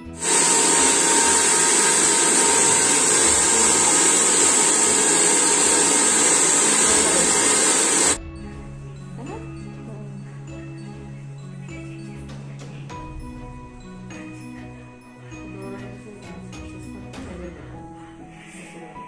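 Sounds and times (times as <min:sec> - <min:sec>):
hair dryer blowing: 0:00.0 - 0:08.2.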